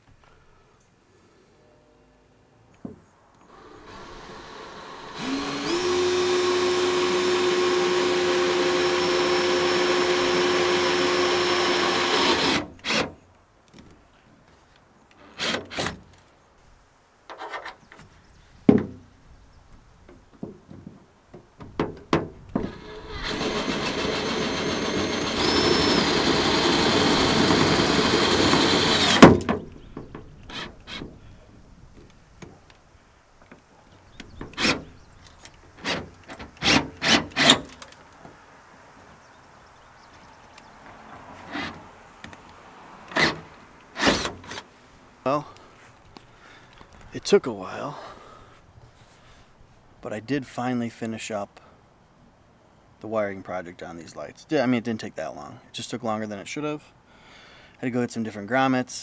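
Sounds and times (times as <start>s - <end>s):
drill boring through aluminum: 3.5s - 13.0s, 22.6s - 29.4s.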